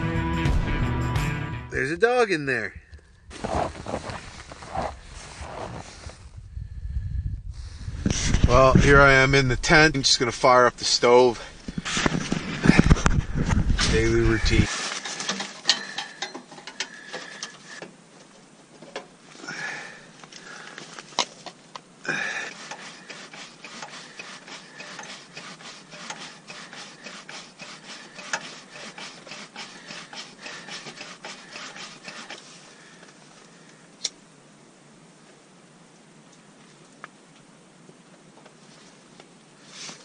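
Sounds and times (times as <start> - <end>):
stove pump plunger strokes: 22.4 - 32.6.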